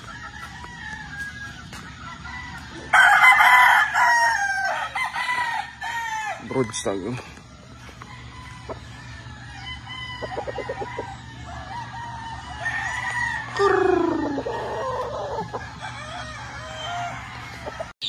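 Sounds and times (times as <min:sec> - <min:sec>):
chickens clucking: 0:00.0 - 0:03.7, 0:06.5 - 0:18.0
roosters crowing: 0:00.0 - 0:18.0.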